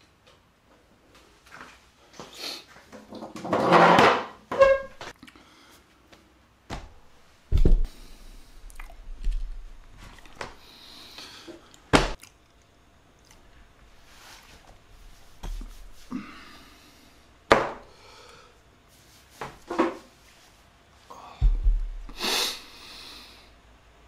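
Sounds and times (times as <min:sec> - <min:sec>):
short squeak: 0:04.5 - 0:05.0
dull thumps: 0:06.7 - 0:08.0, 0:21.4 - 0:22.2
rustling and handling noise: 0:13.3 - 0:16.1.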